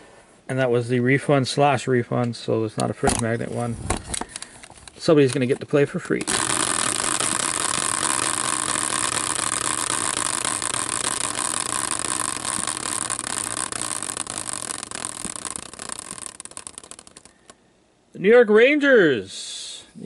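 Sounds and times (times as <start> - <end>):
prize wheel spinning with clicks: 6.2 - 17.6
wheel whirring rattle: 6.2 - 17.6.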